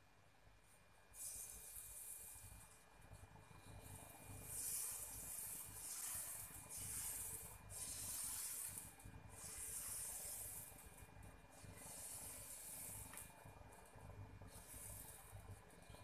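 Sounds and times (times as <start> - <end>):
batter sizzling on griddle: 4.1 - 13.3.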